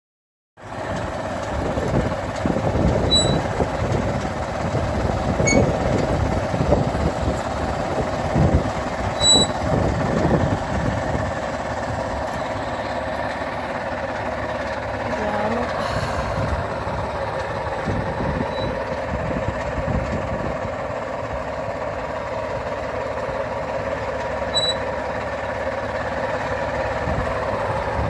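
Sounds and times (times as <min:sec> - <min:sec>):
tractor engine running: 0:00.6 - 0:28.0
short high-pitched tones: 0:09.2 - 0:09.6, 0:24.6 - 0:24.8.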